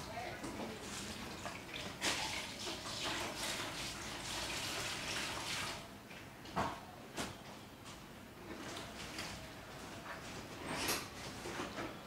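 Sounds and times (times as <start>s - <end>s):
liquid dye pouring and splashing: 0.8s - 5.9s.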